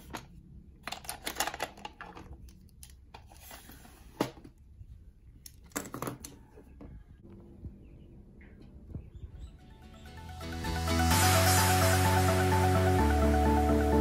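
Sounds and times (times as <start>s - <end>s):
pens clattering in plastic drawer: 0.0s - 4.4s.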